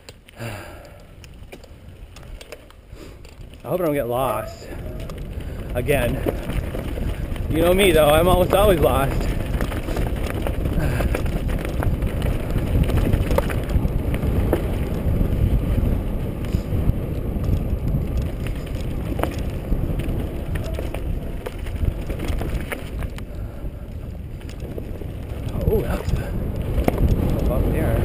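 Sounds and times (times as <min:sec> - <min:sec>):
bike rattling clicks and knocks: 0:00.0 - 0:28.0
bike tyre noise: 0:00.0 - 0:28.0
wind buffeting microphone: 0:01.0 - 0:28.0.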